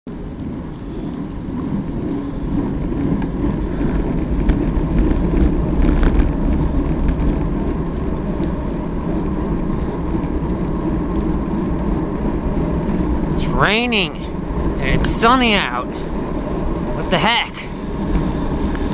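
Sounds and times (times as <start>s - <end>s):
faint ticks: 0.1s - 6.2s
bicycle tyres rumbling on asphalt: 0.1s - 18.9s
wind rushing on microphone: 0.1s - 18.9s.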